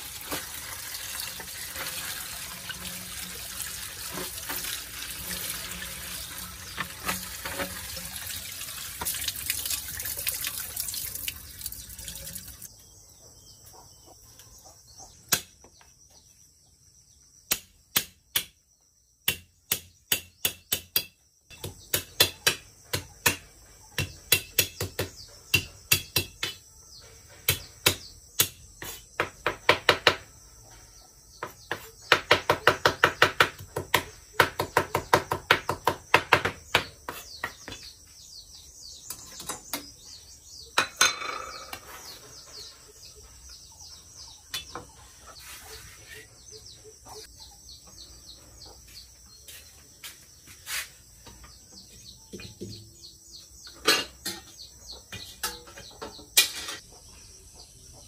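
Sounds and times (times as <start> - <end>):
water running and splashing: 0.0 - 12.7.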